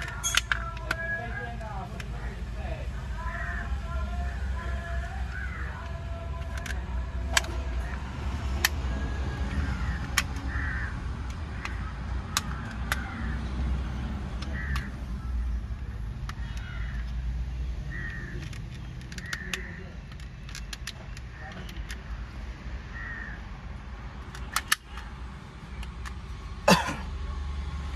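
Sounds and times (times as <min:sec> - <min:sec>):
plastic clips clicking: 0:00.0 - 0:02.2, 0:05.7 - 0:13.4, 0:14.2 - 0:17.3, 0:17.9 - 0:22.1, 0:24.2 - 0:26.2.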